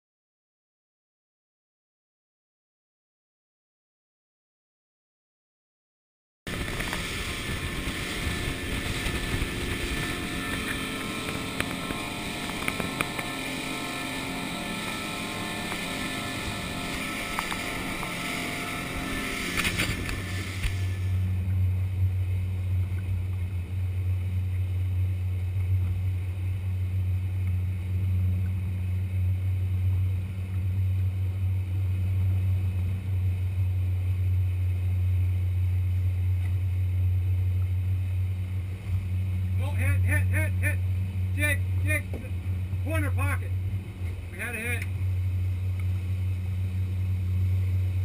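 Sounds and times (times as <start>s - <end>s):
hissy engine and rushing noise: 6.5s - 36.2s
outboard motors droning: 6.5s - 48.0s.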